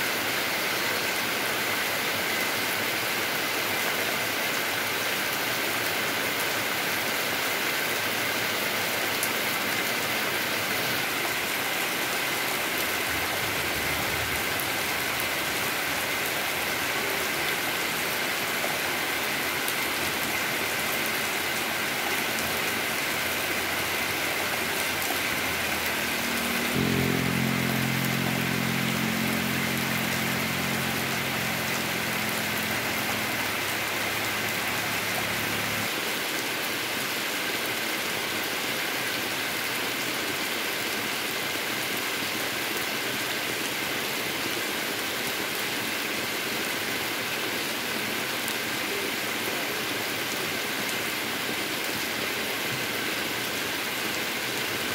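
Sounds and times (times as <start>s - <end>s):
heavy rain on road and leaves: 0.0s - 54.9s
low steady hum: 25.3s - 35.8s.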